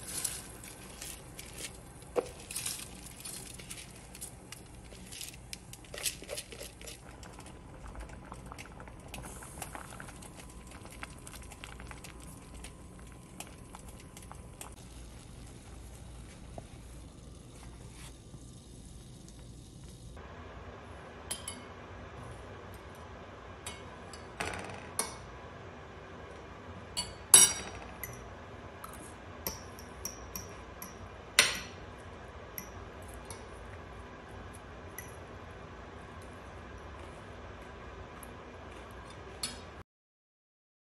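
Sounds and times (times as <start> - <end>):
spoons clinking against bowls: 27.0 - 28.2, 28.9 - 31.8, 32.6 - 33.5.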